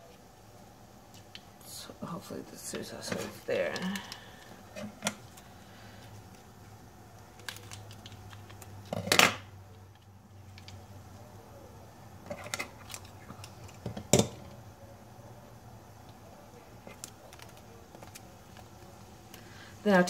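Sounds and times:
low steady hum: 0.0 - 20.0
scissors snipping packet: 7.3 - 8.7.

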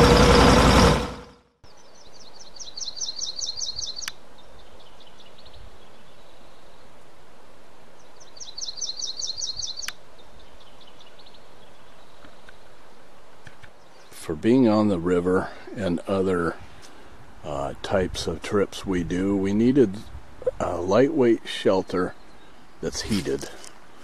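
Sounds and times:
outdoor hiss: 0.0 - 24.0
songbird trilling: 1.7 - 6.8, 8.0 - 12.7.

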